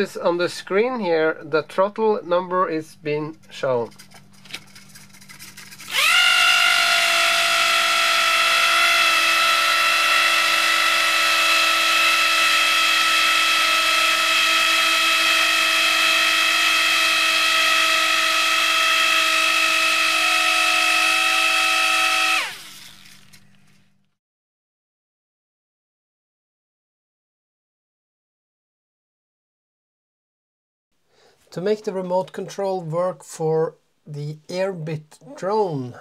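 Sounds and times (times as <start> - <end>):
electric motor propeller whine: 5.8 - 23.8.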